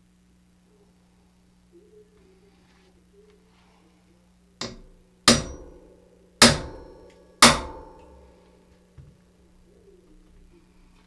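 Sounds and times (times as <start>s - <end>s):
hammer striking metal punch: 4.6s - 8.4s.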